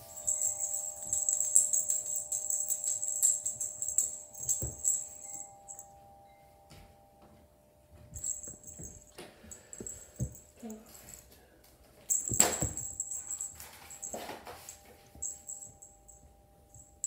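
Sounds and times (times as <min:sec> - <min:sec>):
cat toy jingling: 0:00.0 - 0:05.8, 0:08.2 - 0:10.4, 0:12.1 - 0:16.2.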